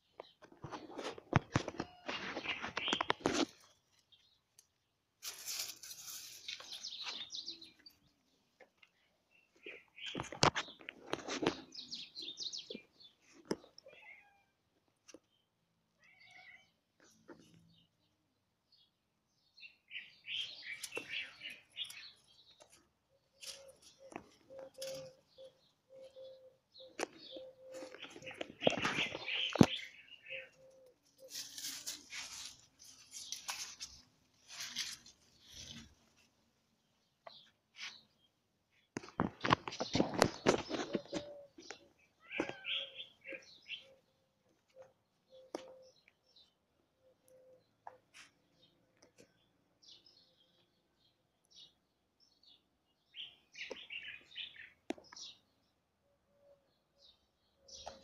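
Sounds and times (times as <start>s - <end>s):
sharp clicks and rustles: 0.2s - 7.9s, 30.8s - 36.3s, 38.9s - 42.6s
cat meowing: 13.8s - 14.6s, 16.0s - 16.8s
footsteps on dry leaves: 31.2s - 36.0s.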